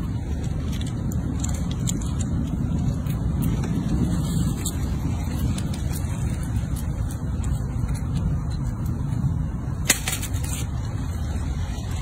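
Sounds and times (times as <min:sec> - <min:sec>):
steady low rumble: 0:00.0 - 0:12.0
squirrel gnawing peanut shell: 0:00.3 - 0:09.2.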